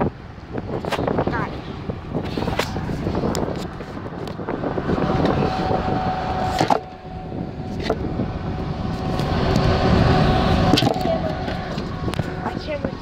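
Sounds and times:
road and engine rumble: 0.0s - 13.0s.

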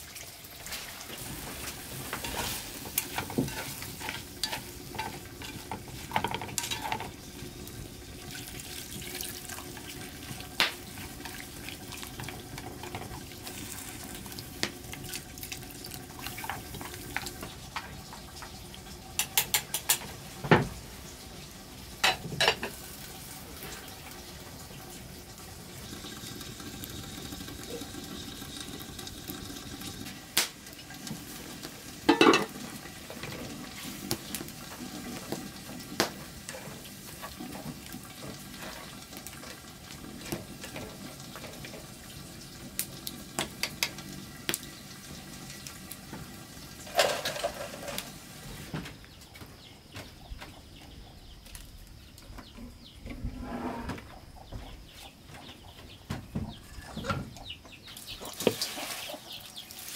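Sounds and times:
food sizzling in a pot: 0.0s - 48.7s, 58.0s - 59.9s
utensils clinking against pots: 1.6s - 7.2s, 19.2s - 20.1s, 22.0s - 22.8s, 32.0s - 32.6s, 46.9s - 48.1s.

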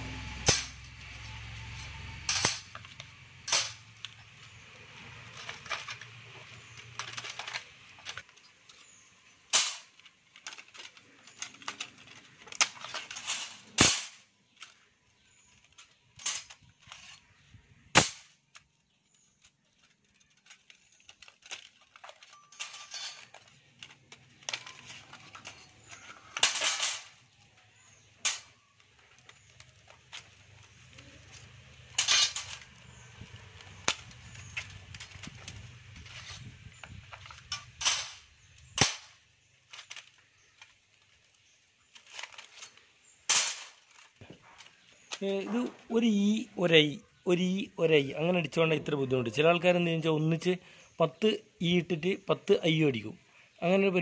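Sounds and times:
metallic clicks of steel plates: 0.0s - 14.8s, 17.9s - 45.7s
faint rattles: 0.0s - 54.0s.

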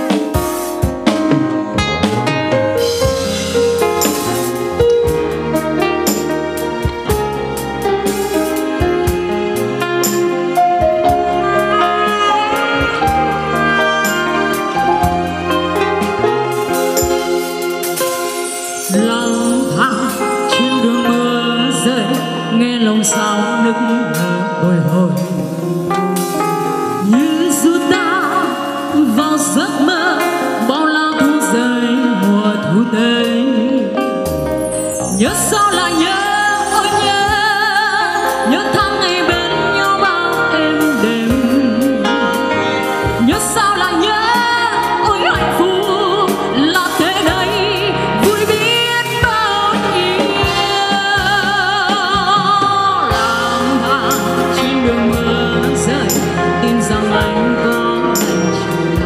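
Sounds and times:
drums: 0.0s - 59.0s
live band sustained chords: 0.0s - 59.0s
woman singing a slow ballad: 18.8s - 59.0s.

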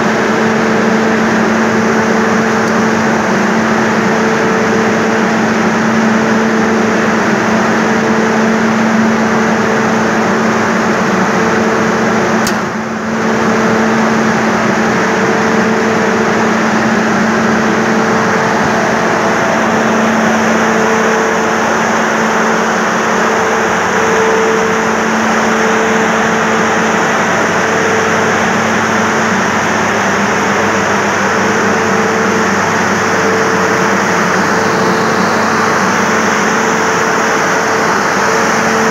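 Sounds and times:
higher machinery hum: 0.0s - 38.9s
low machinery hum: 0.0s - 38.9s.

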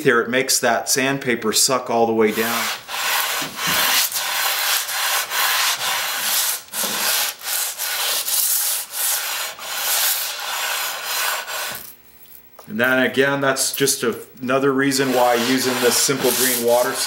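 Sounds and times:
plane sole scraping on sandpaper: 2.3s - 11.9s, 14.9s - 17.0s.

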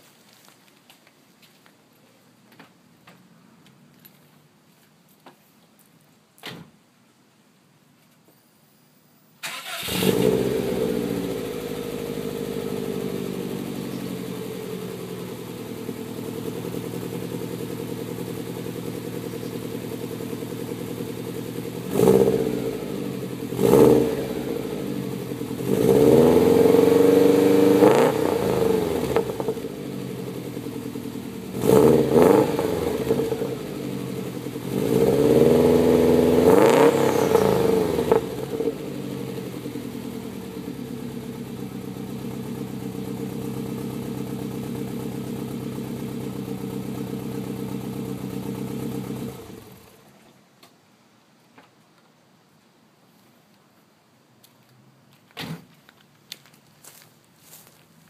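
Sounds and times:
car engine idling and revving: 9.5s - 50.1s.

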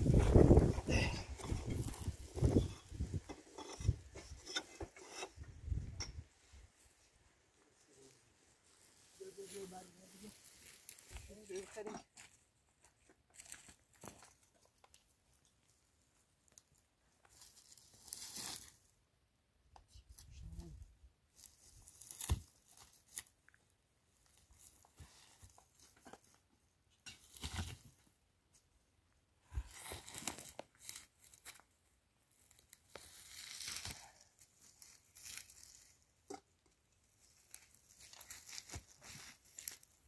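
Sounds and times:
material rustling and crinkling: 32.3s - 40.0s.

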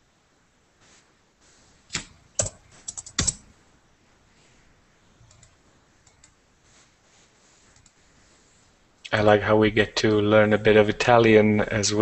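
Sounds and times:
computer keyboard typing: 1.9s - 3.5s, 5.2s - 6.4s.

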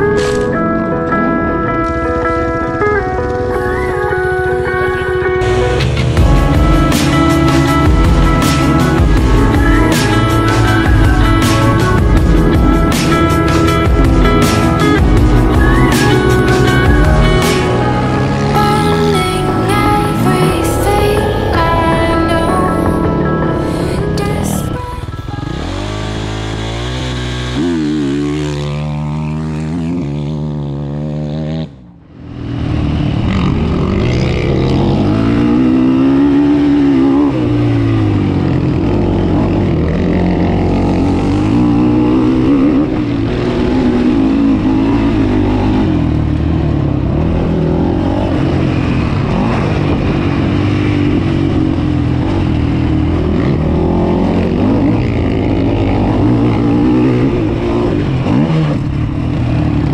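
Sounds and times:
quad engine revving: 5.4s - 59.9s.

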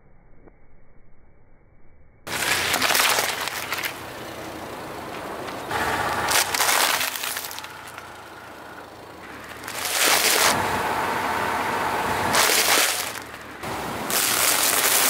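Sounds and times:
tyre crushing watermelons: 2.3s - 4.0s, 5.7s - 8.3s, 9.3s - 10.7s, 12.2s - 15.0s
tyre crunching brittle snack: 2.3s - 4.2s, 5.8s - 8.7s, 9.3s - 10.6s, 12.3s - 15.0s.

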